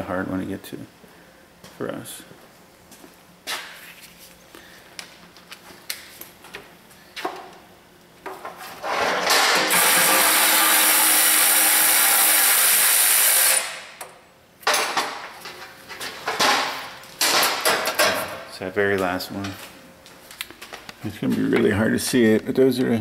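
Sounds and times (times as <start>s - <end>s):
power ratchet spinning: 9.4s - 13.8s.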